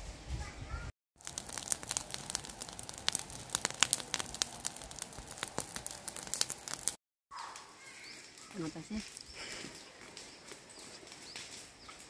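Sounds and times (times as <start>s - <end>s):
faint fire hiss: 0.0s - 7.0s
burning grass crackling: 1.2s - 12.0s.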